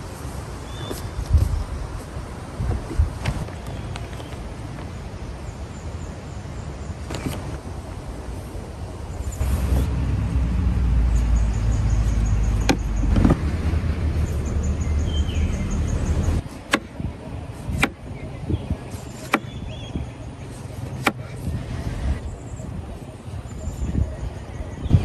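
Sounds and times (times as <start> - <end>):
low engine-like rumble: 9.1 - 16.4.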